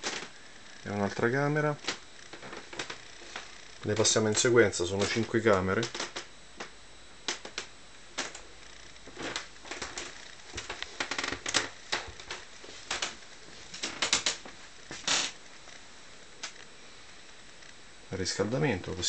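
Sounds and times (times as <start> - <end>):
floor creaking: 1.8 - 15.8.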